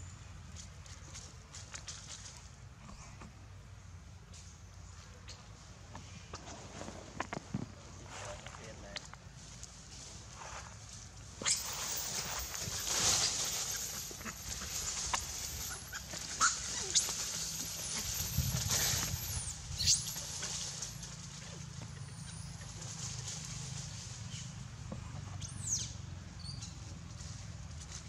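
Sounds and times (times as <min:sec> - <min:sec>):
rustling in dry leaves: 0:00.5 - 0:02.6, 0:06.4 - 0:24.9, 0:26.5 - 0:28.0
monkey squeals: 0:11.4 - 0:20.3.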